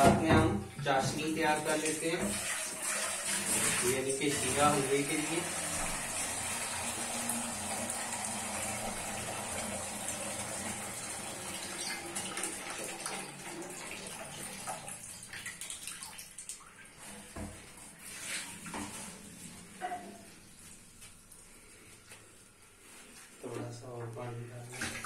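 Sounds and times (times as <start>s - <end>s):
tap water filling steel pot: 0.0s - 17.7s.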